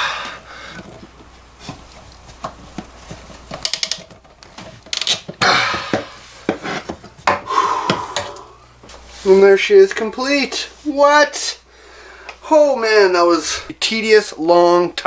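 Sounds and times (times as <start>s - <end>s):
hands clicking and tapping pipe fittings: 0.2s - 8.5s.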